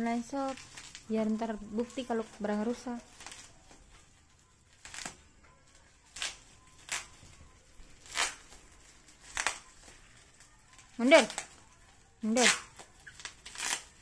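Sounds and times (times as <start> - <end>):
packaging tearing and crinkling: 0.4 - 1.1, 3.1 - 3.7, 4.7 - 5.2, 7.9 - 10.0, 12.3 - 14.0.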